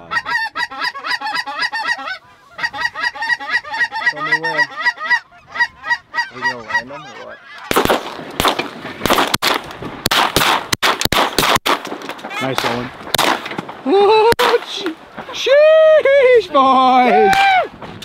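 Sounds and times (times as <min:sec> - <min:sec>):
geese honking: 0:00.0 - 0:07.8
shotgun shots: 0:07.7 - 0:14.8.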